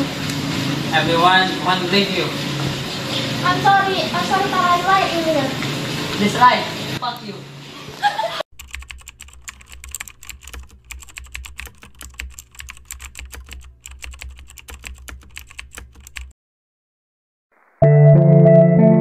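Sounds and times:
rapid keyboard typing clicks: 8.5 - 16.3.

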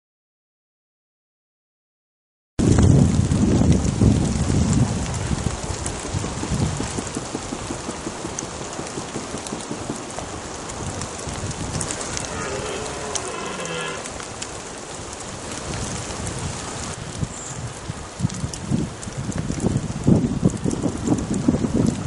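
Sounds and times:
rain falling through woodland: 2.6 - 22.0
deer stag roaring: 11.9 - 14.2.

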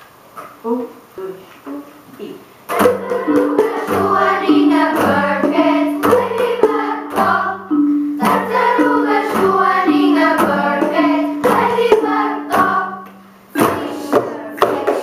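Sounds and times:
children singing: 2.7 - 15.0
sharp percussive strokes: 2.7 - 15.0
glockenspiel: 2.9 - 12.8.

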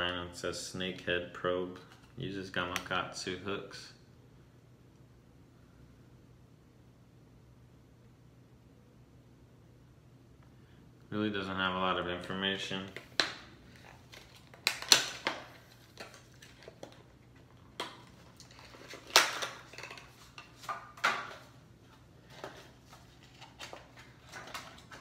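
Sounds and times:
plastic packaging clicks and crinkles: 12.8 - 21.5, 22.2 - 25.0.

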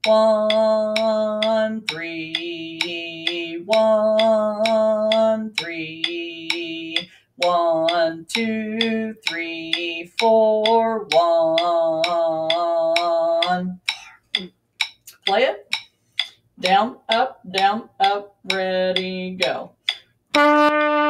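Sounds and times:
metronome click: 0.0 - 21.0
long held instrument notes: 20.4 - 21.0.

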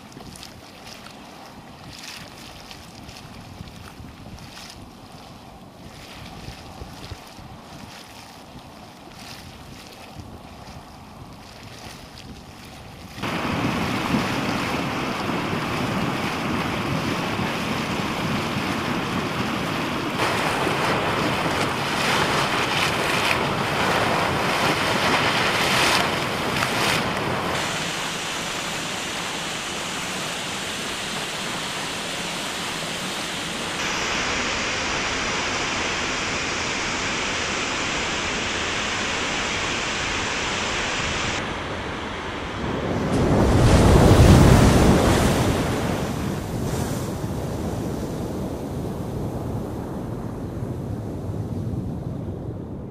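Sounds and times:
waterfall rushing: 13.2 - 46.4.

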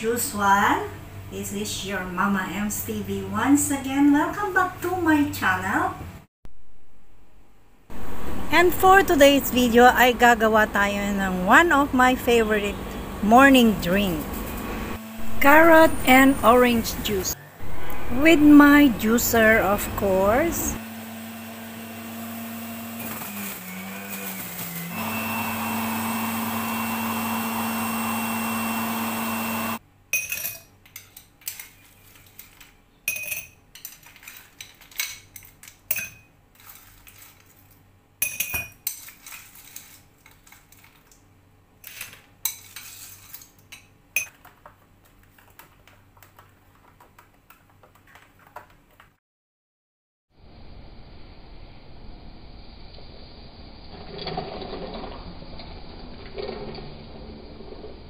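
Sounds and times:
electric juicer motor running: 14.5 - 16.0, 20.7 - 29.8.

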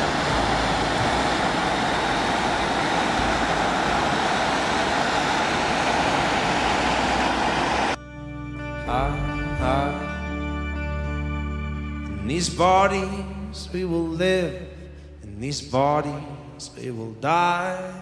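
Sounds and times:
loud steady rushing noise: 0.0 - 8.0
music: 8.0 - 17.1.

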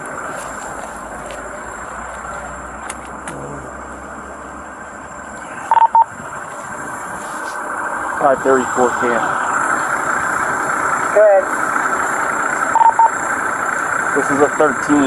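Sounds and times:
motor vehicle noise: 0.0 - 15.0
loud electronic beeps: 5.6 - 6.1, 12.7 - 13.2.

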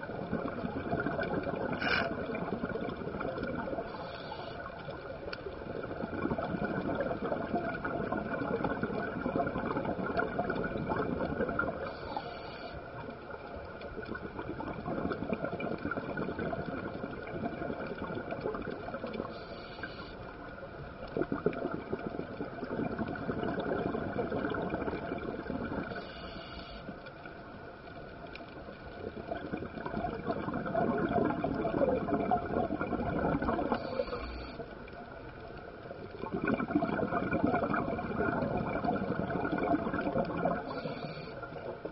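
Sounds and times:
exhaled bubbles underwater: 0.0 - 41.9
regulator inhalation hiss: 3.9 - 4.7, 11.9 - 12.8, 19.3 - 20.2, 25.9 - 26.9, 40.6 - 41.5.

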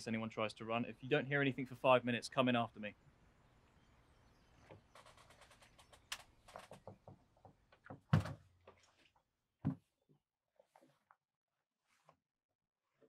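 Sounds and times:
door thunk: 7.9 - 8.4.

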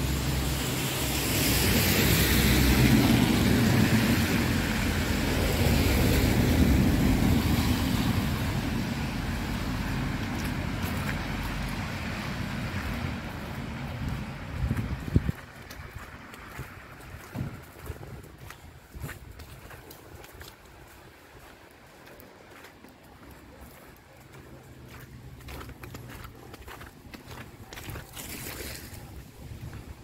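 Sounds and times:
tyre hiss on wet street: 0.0 - 14.6
wind rumbling on microphone: 0.0 - 21.8, 27.3 - 30.0.

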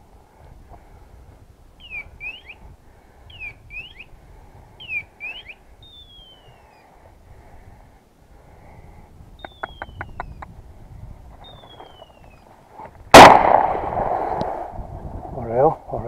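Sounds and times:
high bird-like chirping: 1.8 - 2.6, 3.3 - 4.2, 4.8 - 6.9, 9.3 - 10.5, 11.4 - 12.5.

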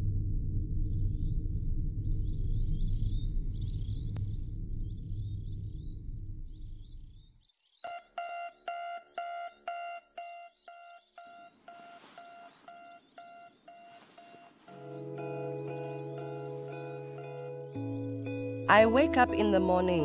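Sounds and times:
low rumbling drone: 0.0 - 7.3
alarm clock beeping: 7.9 - 15.0.

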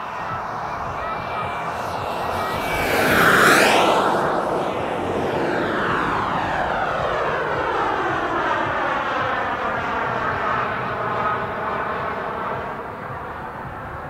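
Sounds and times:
model jet turbine whine: 0.0 - 14.0.

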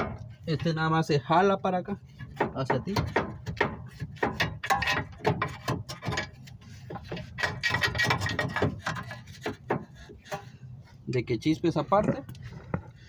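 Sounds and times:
metal clunks and clicks: 2.2 - 10.5
metal scraping: 3.9 - 10.6.

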